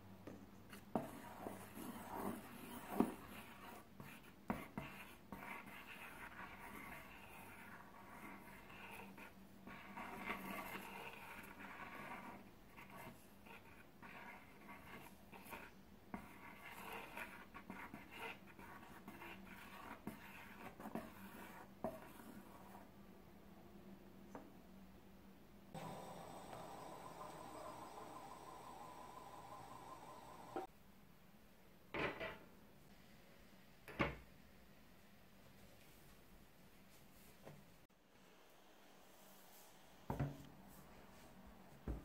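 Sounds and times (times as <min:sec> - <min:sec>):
stick scraping batter in pan: 0:00.7 - 0:22.9.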